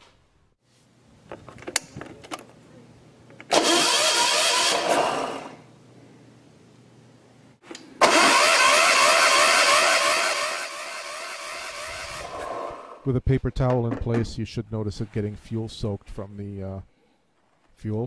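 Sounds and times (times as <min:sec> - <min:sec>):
electric starter cranking diesel engine: 0:03.5 - 0:05.6, 0:08.0 - 0:13.0.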